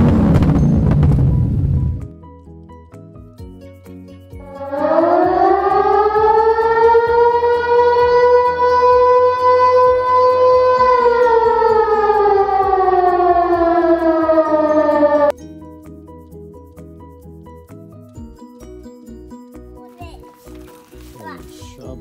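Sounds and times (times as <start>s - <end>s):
siren wailing: 4.4s - 15.3s.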